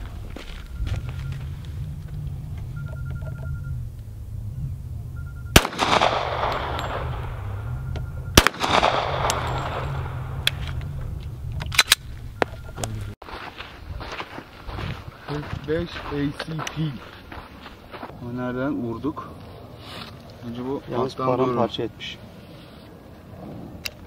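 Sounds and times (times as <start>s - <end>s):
pistol shots echoing: 5.5s - 10.8s.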